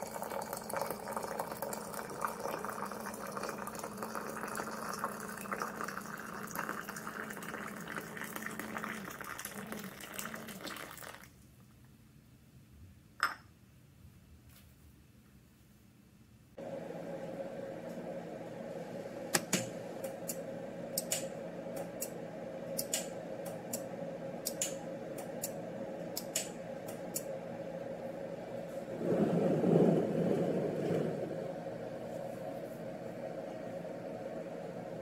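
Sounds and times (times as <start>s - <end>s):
low rustling: 28.6s - 33.0s.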